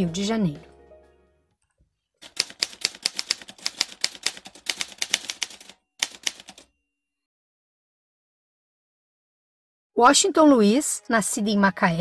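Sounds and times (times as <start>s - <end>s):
typewriter keys clacking: 2.2s - 6.7s.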